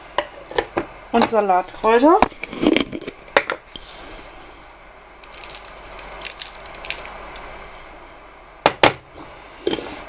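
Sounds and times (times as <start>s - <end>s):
dried herbs rattling in container: 5.2s - 7.9s.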